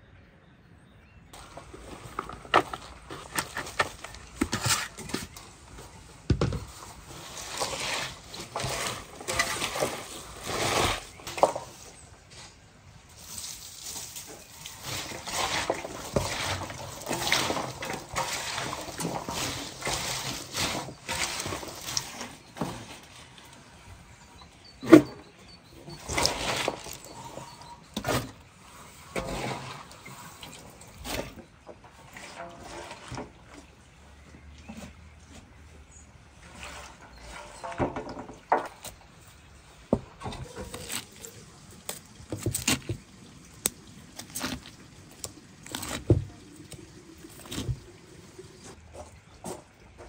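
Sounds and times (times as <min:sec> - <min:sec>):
hands tossing shredded cabbage: 0:06.7 - 0:23.3.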